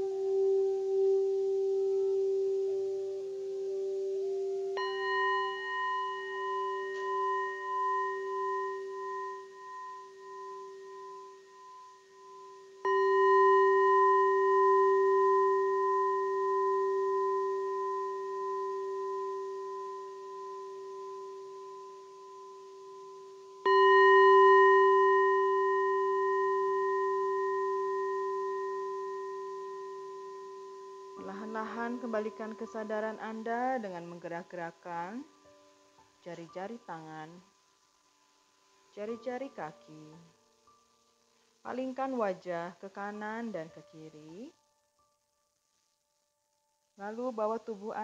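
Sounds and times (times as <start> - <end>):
singing bowl ringing: 0.0 - 37.2.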